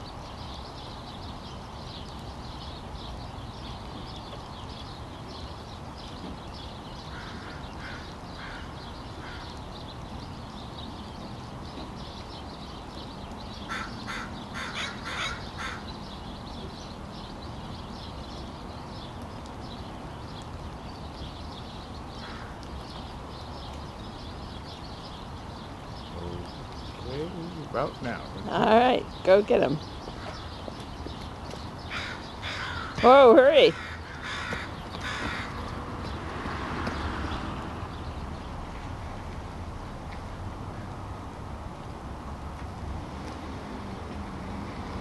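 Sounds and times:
crows cawing: 0:07.1 - 0:09.6, 0:13.7 - 0:15.9, 0:22.2 - 0:22.6, 0:31.9 - 0:35.7.

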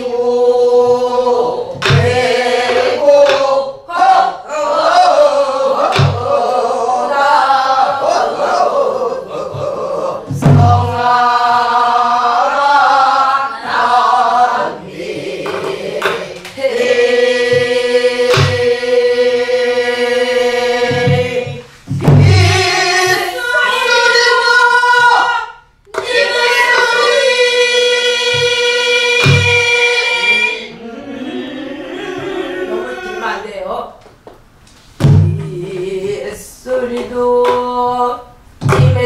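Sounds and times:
women singing a folk song: 0:00.0 - 0:30.9, 0:35.2 - 0:39.0
barrel drum strokes: 0:01.7 - 0:03.5, 0:09.5 - 0:11.1, 0:17.4 - 0:18.8, 0:20.8 - 0:23.4.

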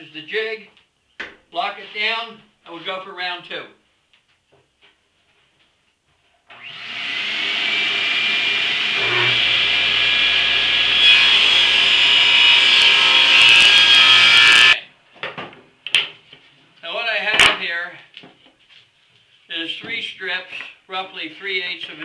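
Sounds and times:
table saw cutting wood: 0:06.5 - 0:14.8.

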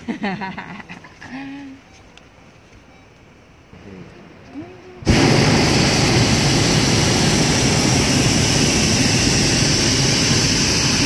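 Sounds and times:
propane burner rushing blast: 0:05.0 - 0:11.0.

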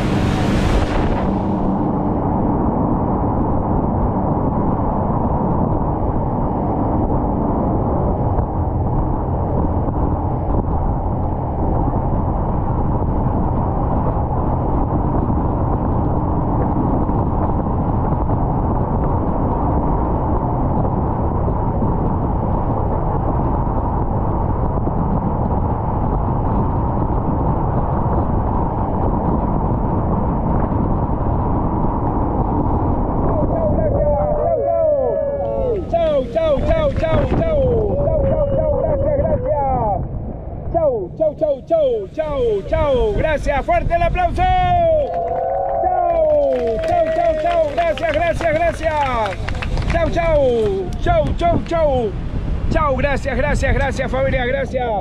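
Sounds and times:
water rushing past hull: 0:00.0 - 0:02.5
speedboat engine drone: 0:00.0 - 0:55.0.

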